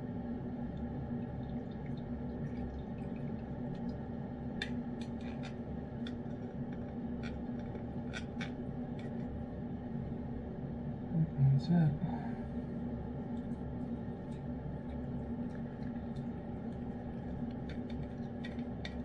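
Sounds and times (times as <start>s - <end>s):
steady low hum: 0.0s - 19.0s
soft wet squishes: 12.4s - 19.0s.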